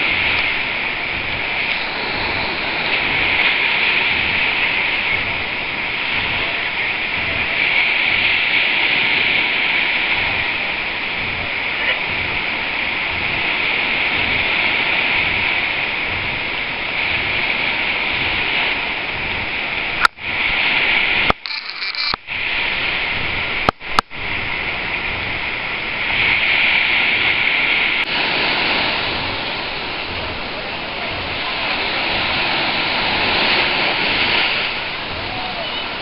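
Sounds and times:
small waves washing onto beach: 0:00.0 - 0:36.0
sharp clicks: 0:21.3 - 0:22.2.

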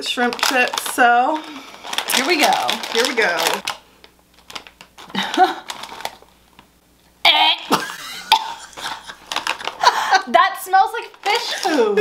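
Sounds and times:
woman gagging and retching: 0:07.3 - 0:09.2.

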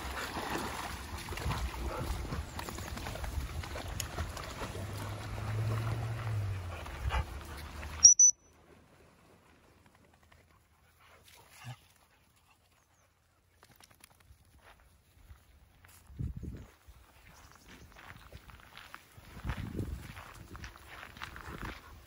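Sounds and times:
dogs splashing in water: 0:00.0 - 0:08.0
short high squeal: 0:08.0 - 0:08.5.

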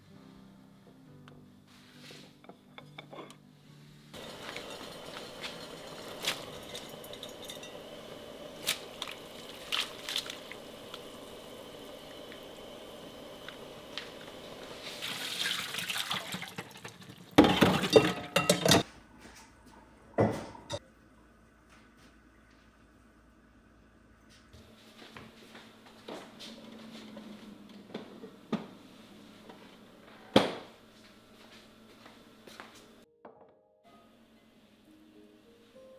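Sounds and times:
kitchenware clattering: 0:04.2 - 0:09.2, 0:15.9 - 0:18.9, 0:20.2 - 0:20.8
water boiling in a pan: 0:04.2 - 0:18.8.

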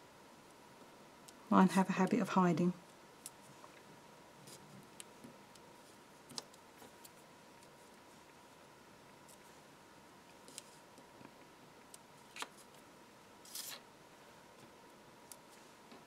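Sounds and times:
card rustle: 0:13.4 - 0:13.8.

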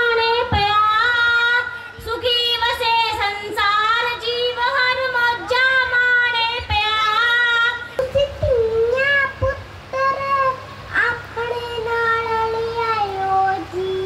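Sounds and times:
girl singing solo: 0:00.0 - 0:14.0.

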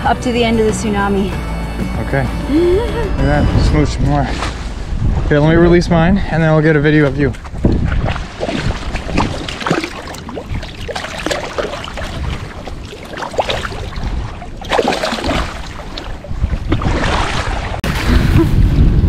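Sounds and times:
wind rumbling on microphone: 0:02.5 - 0:19.0
shallow water splashing: 0:07.4 - 0:18.4.

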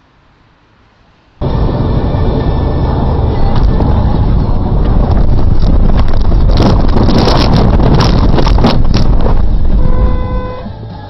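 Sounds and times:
tyres rumbling on gravel: 0:01.4 - 0:10.5
stones rattling and clattering: 0:05.7 - 0:09.5.

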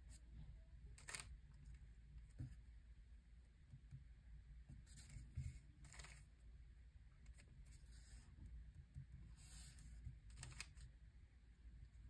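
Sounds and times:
plastic puzzle cube turning: 0:01.0 - 0:01.4, 0:05.8 - 0:06.3, 0:10.3 - 0:10.8.

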